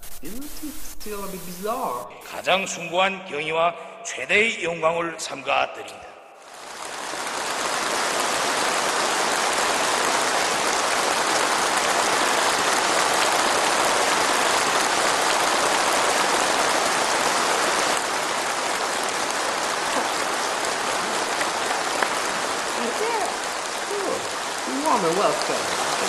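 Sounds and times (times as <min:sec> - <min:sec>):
large crowd applauding: 0:06.6 - 0:24.0.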